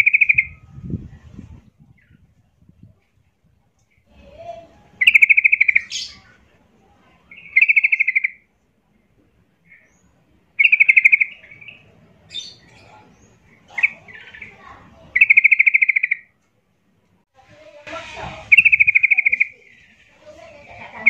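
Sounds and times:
bird trilling: 0.0 - 0.6, 5.0 - 6.3, 7.2 - 8.4, 10.6 - 12.9, 13.6 - 16.4, 18.0 - 21.0
bird chirps: 0.0 - 0.7, 5.0 - 6.4, 7.2 - 8.5, 9.6 - 16.3, 18.0 - 21.0.

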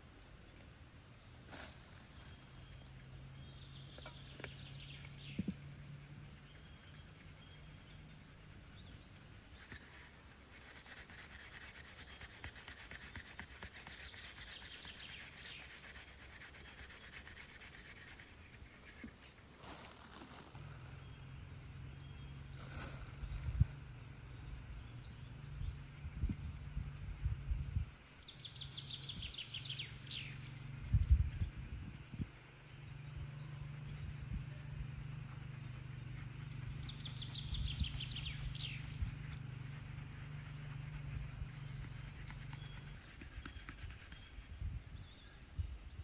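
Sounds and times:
low steady hum: 0.0 - 46.0
birds chirping: 0.4 - 46.0
hands rubbing and scraping: 8.8 - 21.1, 34.7 - 44.8.

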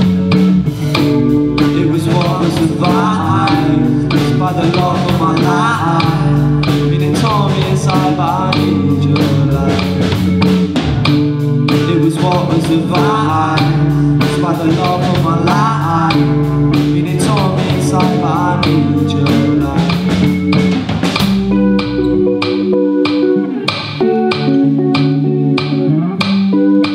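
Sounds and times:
bass guitar: 0.0 - 26.9
drum kit: 0.0 - 26.9
electric guitars: 0.0 - 26.9
person singing lead vocal: 1.4 - 10.4, 11.6 - 20.7.

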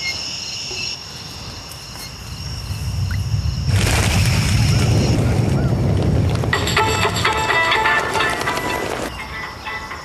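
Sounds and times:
crickets chirping: 0.0 - 8.3, 9.0 - 10.0
deep rumble: 2.3 - 7.8.

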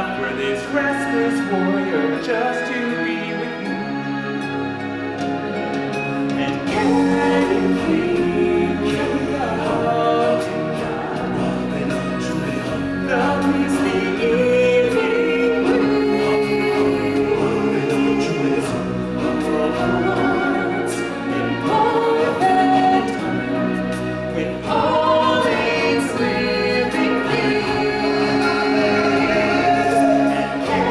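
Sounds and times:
choir singing: 0.0 - 30.9
musical backing track: 0.0 - 30.9.

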